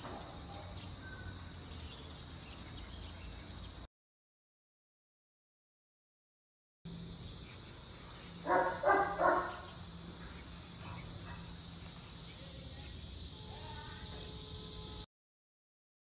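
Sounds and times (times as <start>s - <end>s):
steady high hiss: 0.0s - 3.9s, 6.9s - 15.1s
dog barking: 8.4s - 9.8s, 10.8s - 11.6s.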